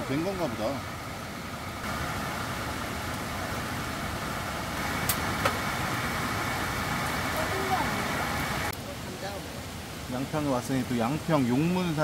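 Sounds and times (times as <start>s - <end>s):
gas burner rushing: 1.8s - 8.7s.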